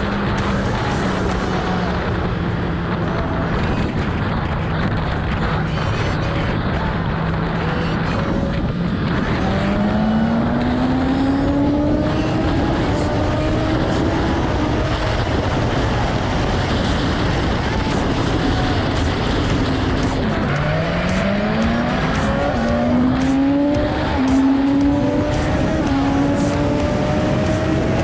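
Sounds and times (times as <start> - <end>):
wind noise: 0.0 - 28.0
motorcycle engine at high revs: 7.2 - 28.0.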